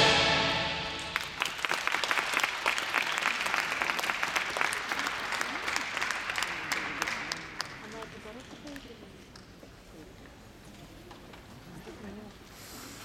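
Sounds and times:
program music: 0:00.0 - 0:01.4
audience applauding: 0:01.0 - 0:08.8.

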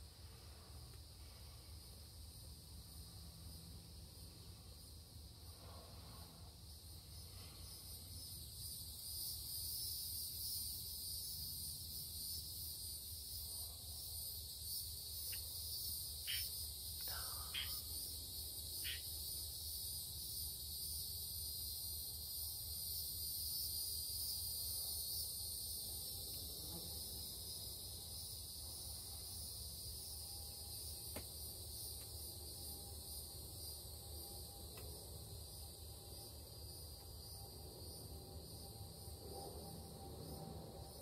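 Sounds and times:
insects singing: 0:07.6 - 0:25.8.

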